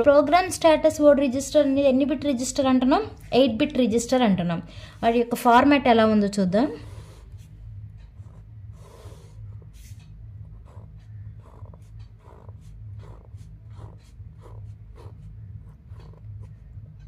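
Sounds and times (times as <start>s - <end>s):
steady low hum: 0.0s - 17.0s
pen scratching on paper: 6.6s - 17.0s.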